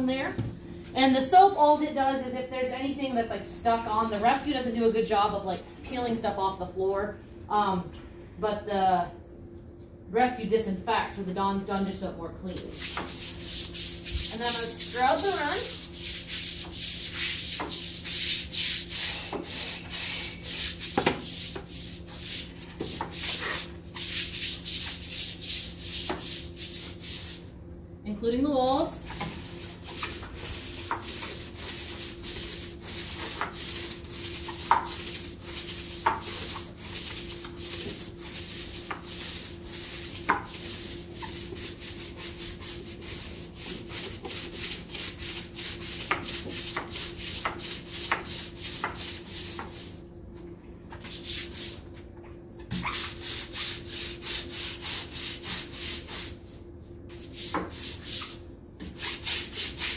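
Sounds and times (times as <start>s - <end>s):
brush scrubbing concrete: 12.7s - 27.5s, 29.1s - 50.0s, 52.8s - 56.5s, 57.1s - 59.9s.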